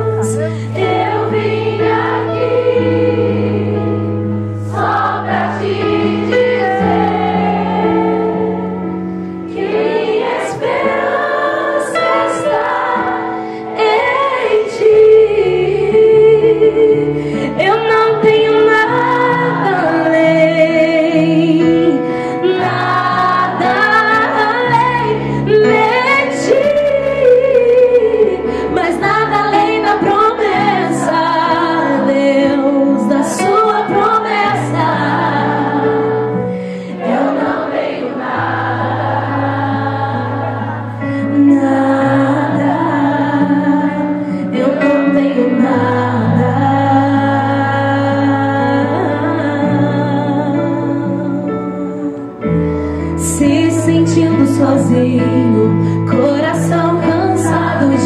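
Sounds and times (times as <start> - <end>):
keyboard chords: 0.0 - 58.0
woman singing: 10.8 - 36.4, 41.2 - 58.0.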